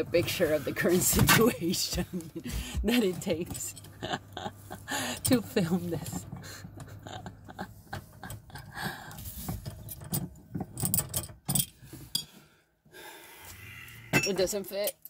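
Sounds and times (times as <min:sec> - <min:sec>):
metal fittings clinking and scraping: 0:09.2 - 0:12.3.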